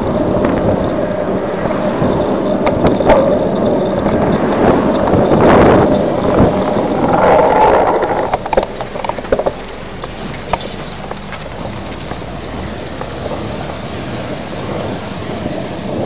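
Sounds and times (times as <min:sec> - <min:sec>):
bike road noise: 0:00.0 - 0:16.0
wind rushing over microphone: 0:00.0 - 0:16.0
scattered clicks: 0:02.6 - 0:12.2.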